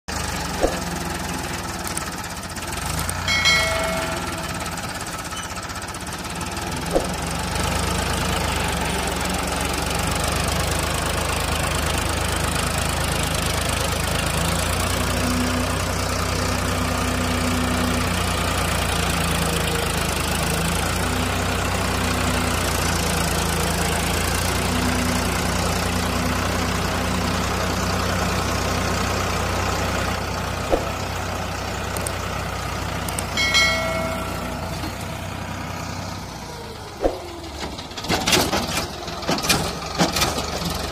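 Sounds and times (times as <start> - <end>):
tractor diesel engine under load: 0.1 - 40.9
short high-pitched tone: 33.4 - 34.9.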